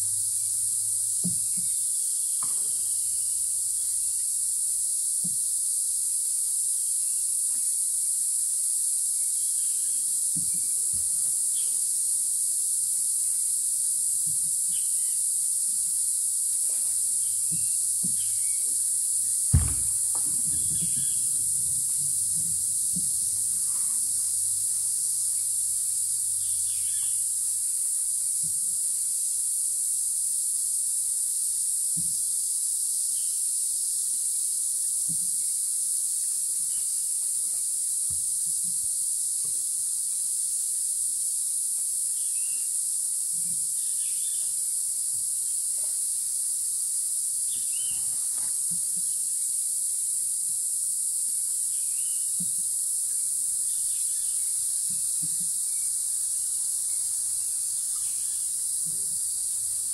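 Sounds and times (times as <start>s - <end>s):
insects droning: 0.0s - 59.9s
soft low knocks: 19.6s - 23.2s.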